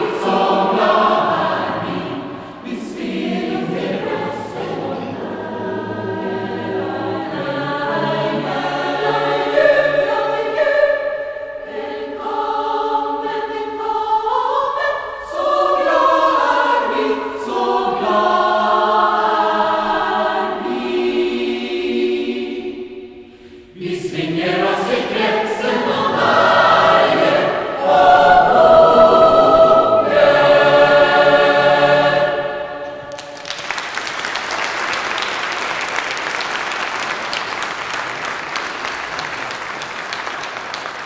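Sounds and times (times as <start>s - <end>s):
mixed choir singing a carol: 0.0s - 33.4s
audience applause: 33.0s - 41.0s.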